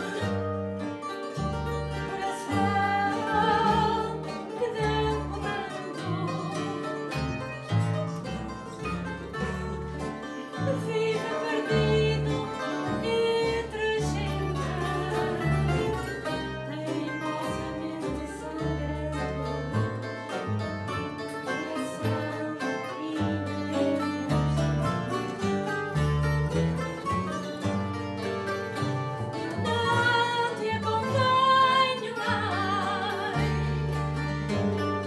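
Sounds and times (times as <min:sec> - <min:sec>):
double bass held notes: 0:00.0 - 0:35.0
guitars playing: 0:00.0 - 0:35.0
woman singing: 0:02.0 - 0:07.0, 0:10.6 - 0:19.7, 0:21.5 - 0:24.3, 0:29.6 - 0:34.0.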